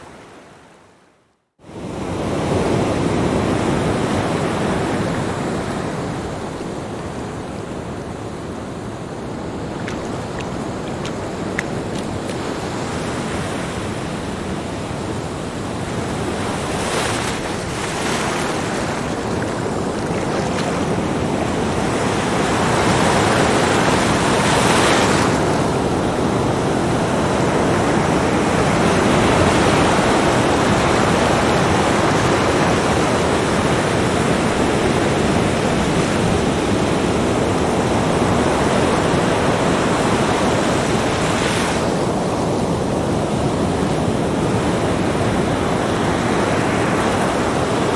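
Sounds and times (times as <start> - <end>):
waves breaking on beach: 1.6 - 47.9.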